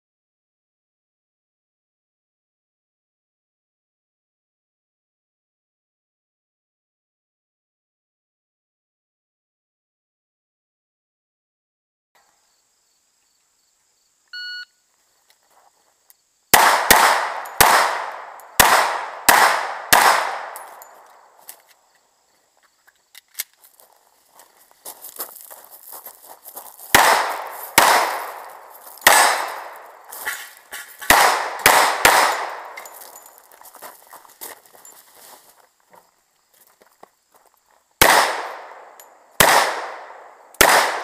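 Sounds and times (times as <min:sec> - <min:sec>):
shot timer beep: 0:14.3 - 0:14.7
pistol shots: 0:16.5 - 0:21.0, 0:26.9 - 0:30.4, 0:31.0 - 0:33.0, 0:38.0 - 0:41.0.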